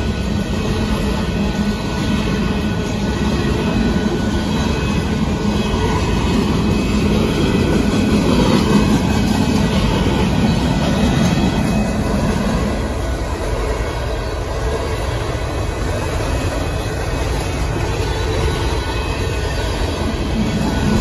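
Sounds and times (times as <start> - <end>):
steel train wheels rumbling on rails: 0.0 - 21.0.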